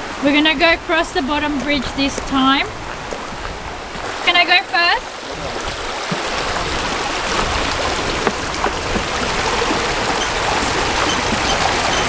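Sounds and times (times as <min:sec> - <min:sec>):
river water rushing over rocks: 0:00.0 - 0:12.0.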